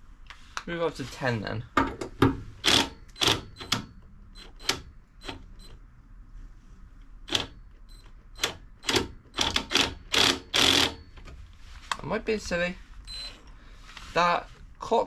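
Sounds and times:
cordless drill bursts: 2.6 - 3.7, 8.4 - 11.0.

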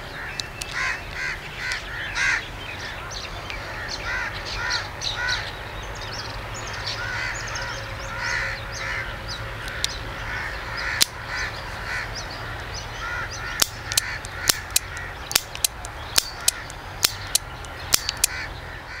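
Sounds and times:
crows cawing: 0.0 - 5.6, 6.6 - 19.0
revolver action clicking: 13.6 - 18.4.

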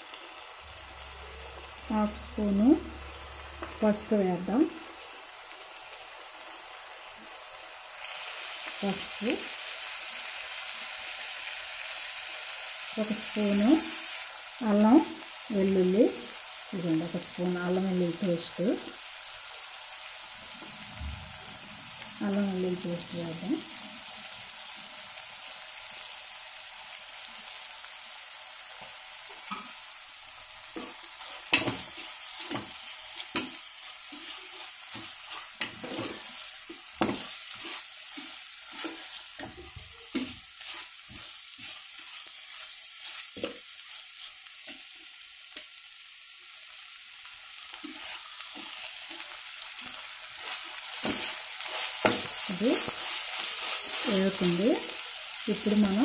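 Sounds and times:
onions sizzling in oil: 0.0 - 56.0
spoon scraping and knocking pot: 30.8 - 41.8.

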